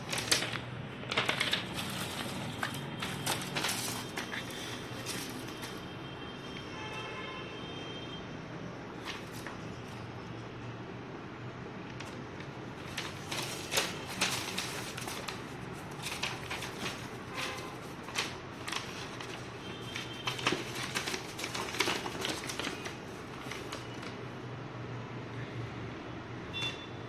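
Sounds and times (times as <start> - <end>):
paper rustling and tapping: 0.0 - 5.8, 9.0 - 10.0, 11.9 - 24.3.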